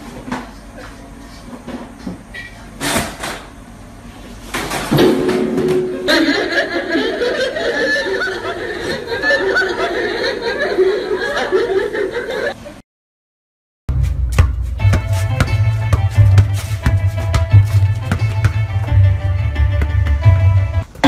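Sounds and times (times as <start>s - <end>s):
people laughing loudly: 6.0s - 12.7s.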